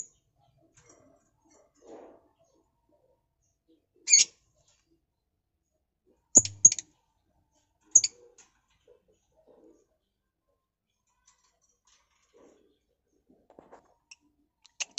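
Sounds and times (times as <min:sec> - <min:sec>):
lovebirds chirping: 0:03.5 - 0:04.9, 0:06.4 - 0:06.9, 0:07.9 - 0:08.1.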